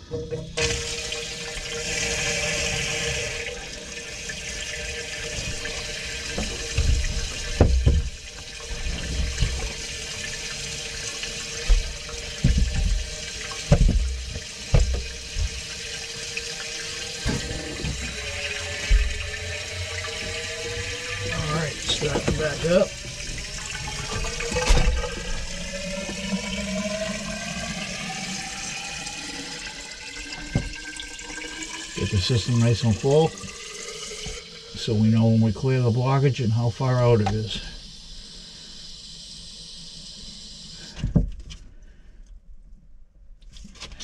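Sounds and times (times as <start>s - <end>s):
water running into a drain: 0.0s - 42.0s
dull knocks: 13.7s - 15.6s.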